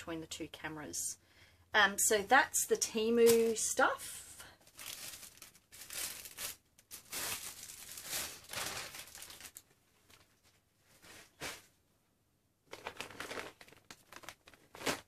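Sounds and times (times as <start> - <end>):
plastic bags crinkling: 4.6 - 11.7, 12.7 - 15.0.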